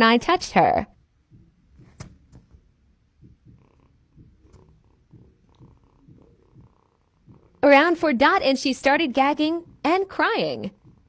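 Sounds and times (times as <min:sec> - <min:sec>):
sharp tap: 0:01.3 - 0:02.6
kitten purring: 0:03.2 - 0:07.6.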